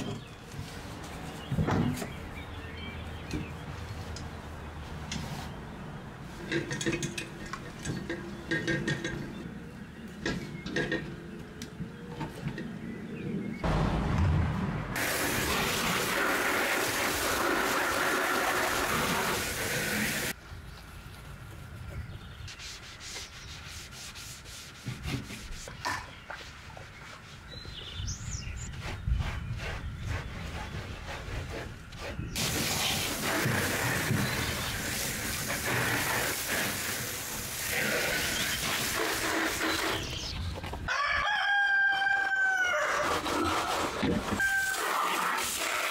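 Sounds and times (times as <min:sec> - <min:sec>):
garden hose spraying: 0:15.0 - 0:20.4, 0:32.4 - 0:40.4, 0:44.4 - 0:45.9
bird chirping: 0:25.7 - 0:31.1.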